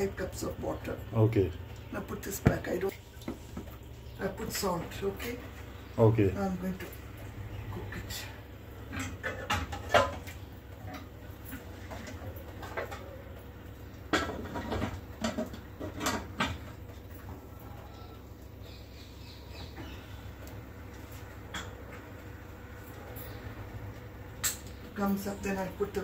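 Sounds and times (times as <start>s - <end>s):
cooking pots and lids clattering: 8.8s - 17.2s.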